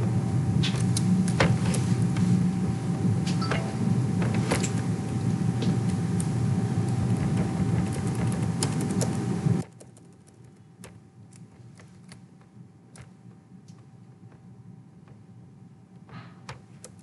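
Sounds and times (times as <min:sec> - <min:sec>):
faint hum: 0:00.0 - 0:17.0
loud steady rushing noise: 0:01.9 - 0:09.6.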